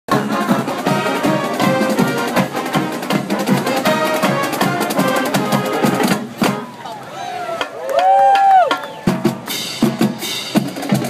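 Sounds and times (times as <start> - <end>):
snare and bass drums: 0.1 - 6.7, 7.6 - 11.0
held brass notes: 0.1 - 6.8.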